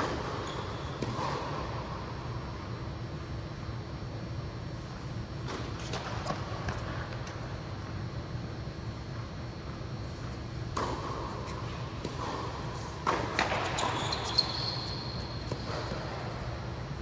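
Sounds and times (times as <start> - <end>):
steady low hum: 0.0 - 17.0
tennis ball pocks in a hall: 0.0 - 17.0
high shoe squeak: 0.3 - 1.0, 13.4 - 16.1.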